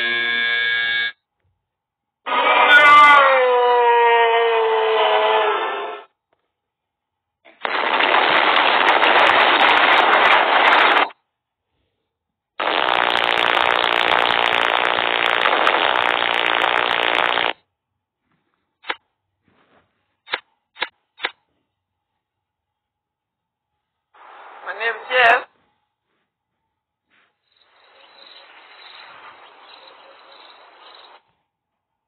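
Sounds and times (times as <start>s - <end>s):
loud noisy blast: 7.6s - 11.1s, 12.6s - 17.6s.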